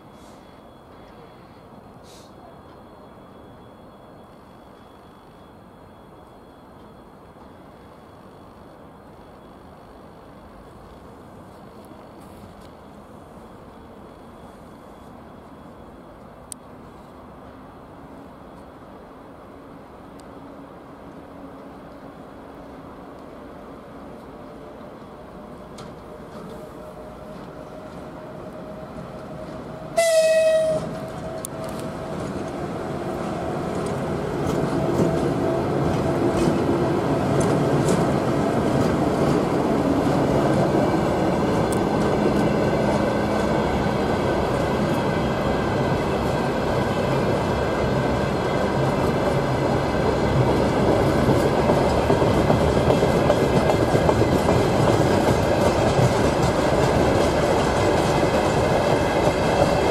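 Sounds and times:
train wheels rumbling on rails: 4.2 - 59.9
locomotive horn blast: 29.8 - 31.8.

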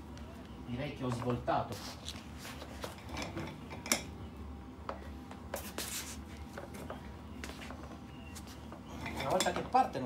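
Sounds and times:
chair casters rolling on concrete: 1.0 - 4.1, 6.4 - 10.0
shoe soles scuffing floor: 1.6 - 3.0, 5.5 - 6.8, 7.4 - 8.6.

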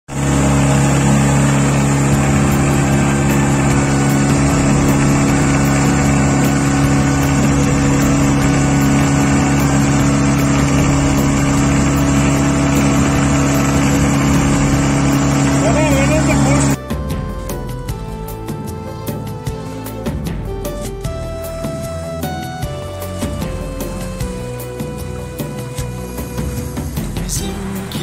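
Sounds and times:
outboard motor running: 0.0 - 28.0
water rushing in boat wake: 0.1 - 16.8.

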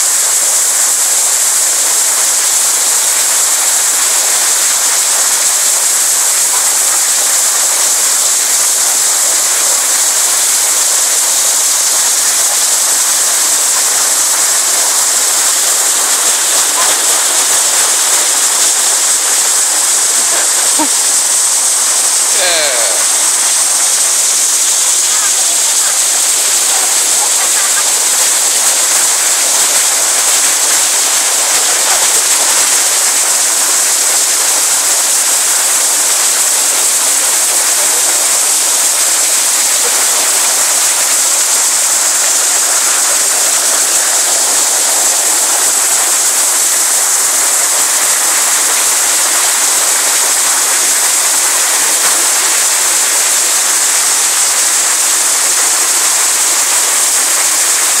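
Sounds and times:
stream and waterfall rushing: 0.0 - 58.0.

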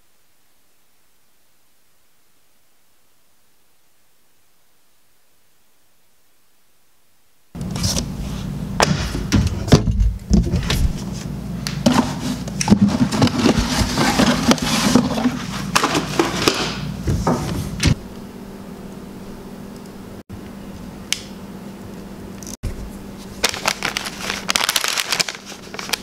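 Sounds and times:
steady low hum: 0.0 - 24.7
kitchen utensils knocking and clattering: 11.8 - 18.0.

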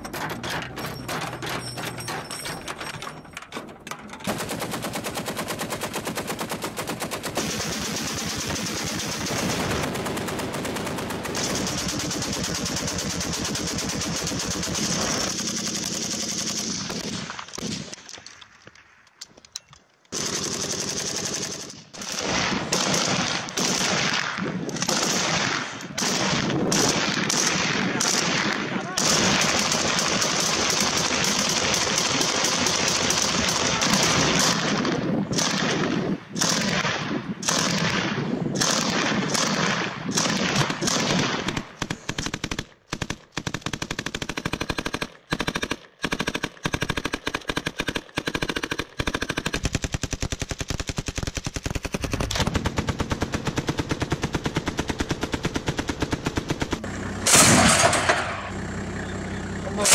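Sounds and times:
automatic gunfire: 4.2 - 17.9, 20.1 - 58.5
loud blast: 57.2 - 58.6.

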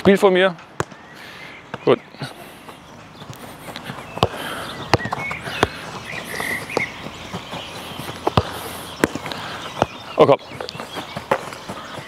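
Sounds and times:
quick light footsteps: 2.4 - 12.0
football kicks on turf: 4.2 - 5.8, 8.2 - 10.0.

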